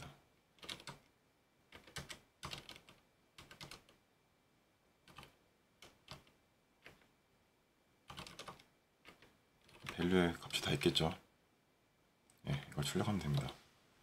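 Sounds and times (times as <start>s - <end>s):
computer keyboard typing: 0.6s - 1.1s, 1.7s - 4.0s, 5.0s - 7.1s, 8.0s - 10.8s.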